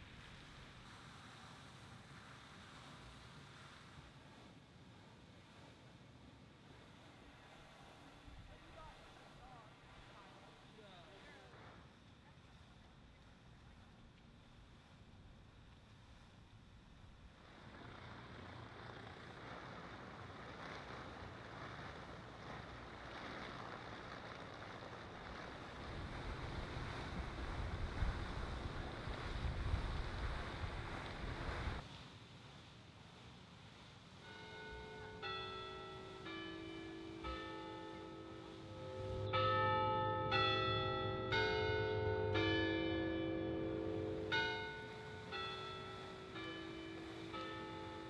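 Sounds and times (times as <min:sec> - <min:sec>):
wind rumbling on microphone: 0:16.0 - 0:33.9
water washing at lake edge: 0:18.0 - 0:32.1, 0:42.9 - 0:48.0
chime bells playing a slow tune: 0:34.2 - 0:48.0.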